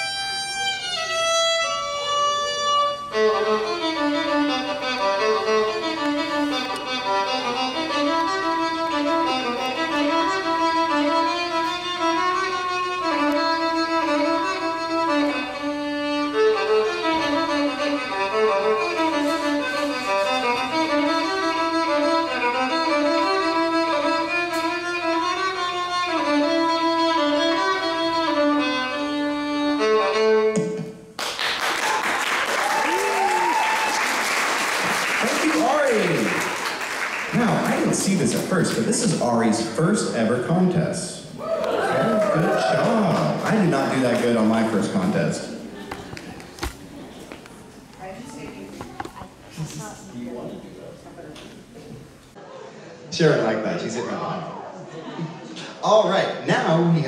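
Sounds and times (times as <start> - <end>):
fiddle playing lively tune: 0.0 - 30.9, 42.0 - 49.5
audience applause: 31.2 - 38.8, 41.5 - 46.6.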